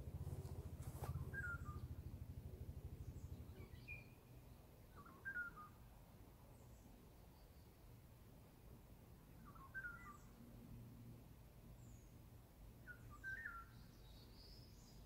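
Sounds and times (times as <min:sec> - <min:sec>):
birds chirping: 0:00.1 - 0:02.3.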